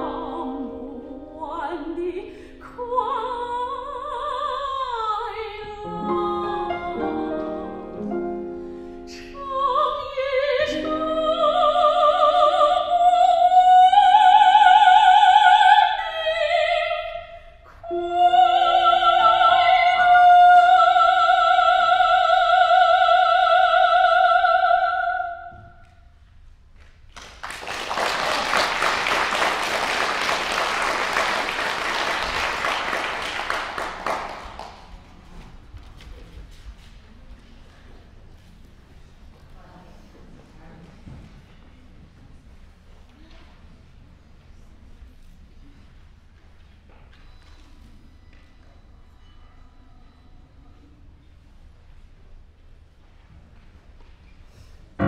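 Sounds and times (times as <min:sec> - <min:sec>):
operatic soprano singing: 0:00.0 - 0:08.0, 0:09.0 - 0:25.8
grand piano accompaniment: 0:05.8 - 0:12.8
audience applause: 0:27.2 - 0:35.1.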